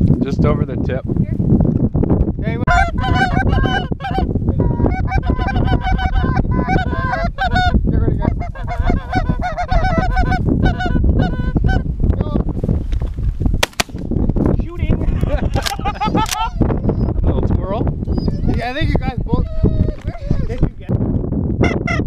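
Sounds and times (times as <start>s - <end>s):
wind rumble on microphone: 0.0s - 22.0s
birds honking: 2.7s - 7.8s, 8.4s - 11.7s.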